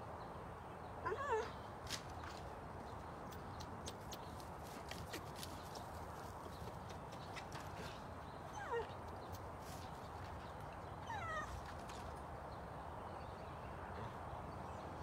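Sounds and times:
dog whining: 0:01.1 - 0:01.6, 0:08.5 - 0:09.0, 0:11.0 - 0:11.5.

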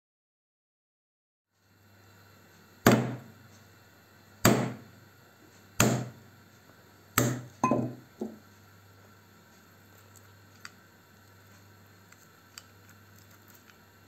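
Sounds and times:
mallet knocking on wooden board: 0:07.2 - 0:08.4.

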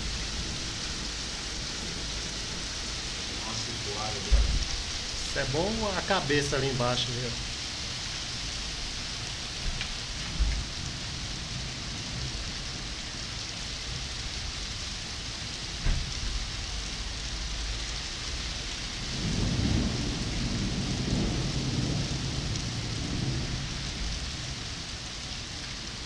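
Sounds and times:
low thunder rumble: 0:00.0 - 0:07.7, 0:08.3 - 0:13.0, 0:19.1 - 0:24.8
heavy rain on pavement and cars: 0:00.0 - 0:26.0.

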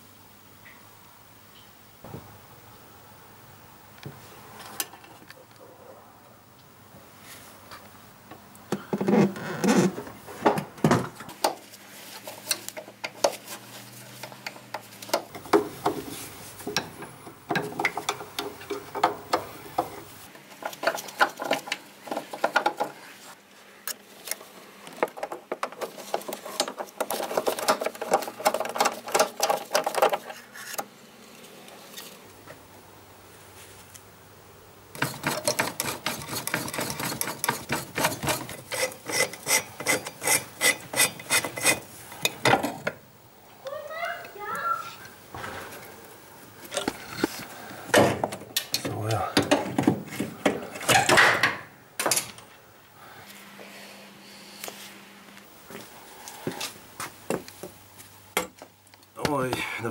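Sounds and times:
tools clicking and scraping on metal: 0:34.9 - 0:43.0.

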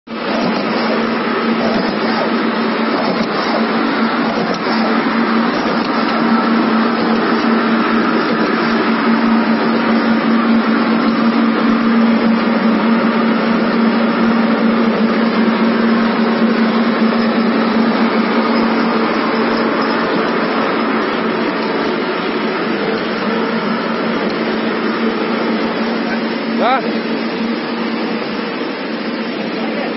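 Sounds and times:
machine humming and whirring: 0:00.1 - 0:29.9.

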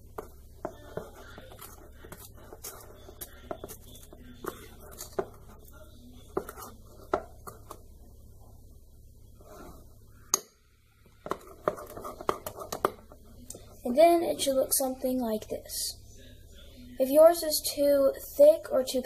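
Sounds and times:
spoon stirring batter in bowl: 0:00.0 - 0:15.2.

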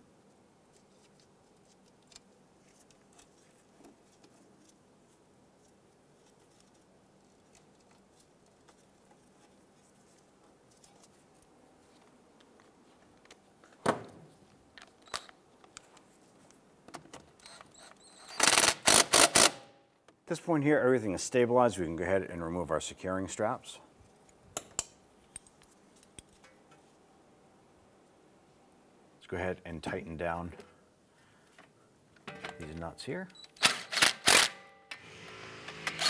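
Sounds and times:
cordless power tool bursts: 0:18.3 - 0:19.6, 0:33.6 - 0:36.0.

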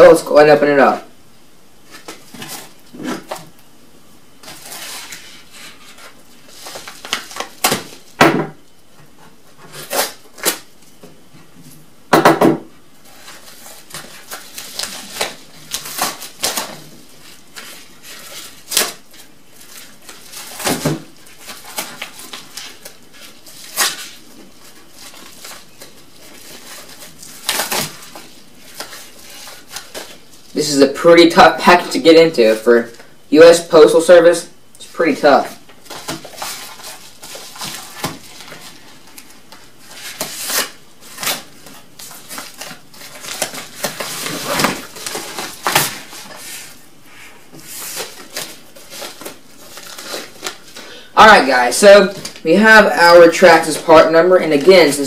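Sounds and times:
paper envelope tearing and rustling: 0:01.9 - 0:03.4, 0:04.4 - 0:08.1, 0:09.6 - 0:10.7, 0:13.0 - 0:32.9, 0:34.8 - 0:46.8, 0:47.6 - 0:55.0.

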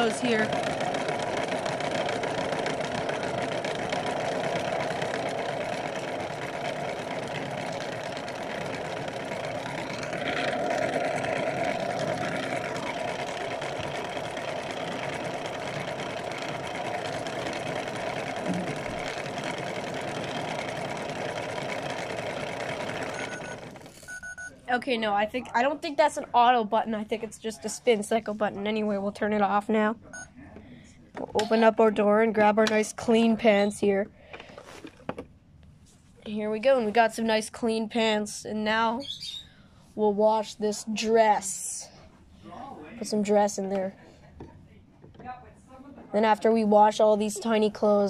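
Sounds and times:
toy washing machine motor whirring: 0:00.0 - 0:24.5.

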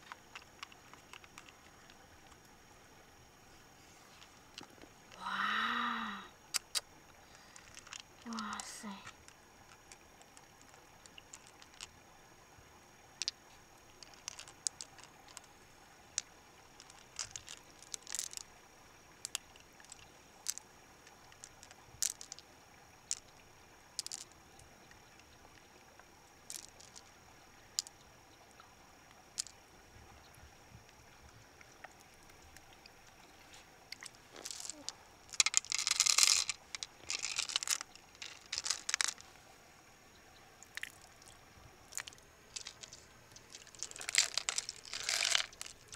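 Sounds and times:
hard objects clicking: 0:00.0 - 0:02.0, 0:14.0 - 0:15.5, 0:16.1 - 0:18.4, 0:21.3 - 0:22.4, 0:34.0 - 0:39.2, 0:41.9 - 0:45.9
faint steady hiss: 0:00.0 - 0:45.9.

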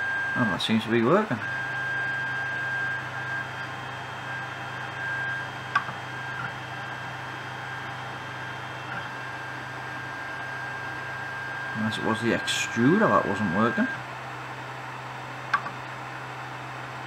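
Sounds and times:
printer motor hum and whine: 0:00.0 - 0:17.0
sharp click: 0:05.7 - 0:06.0, 0:15.5 - 0:15.8.

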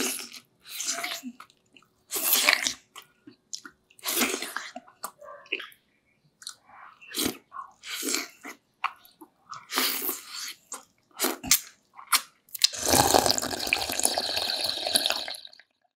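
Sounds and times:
loud slurping of broth: 0:12.6 - 0:15.5.

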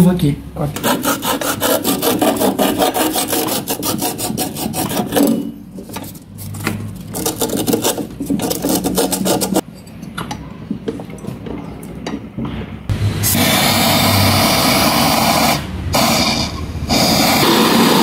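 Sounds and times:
sandpaper scraping metal tube: 0:00.8 - 0:09.6.

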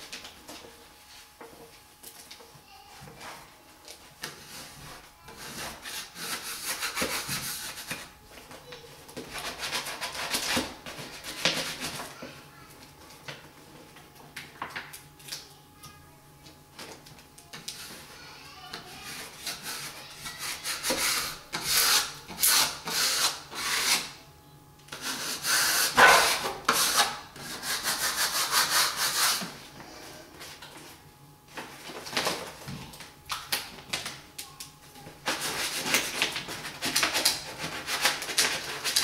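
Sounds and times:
paper backing rustling and rubbing: 0:35.2 - 0:39.0.

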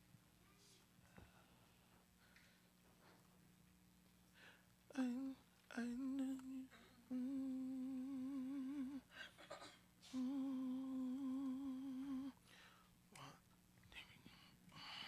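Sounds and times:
person humming held notes: 0:04.9 - 0:12.4
soft whispering: 0:13.2 - 0:15.0.

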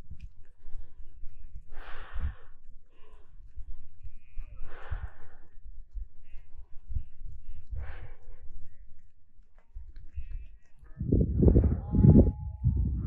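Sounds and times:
heavy breathing: 0:00.5 - 0:09.1
low rumble: 0:10.8 - 0:13.0.

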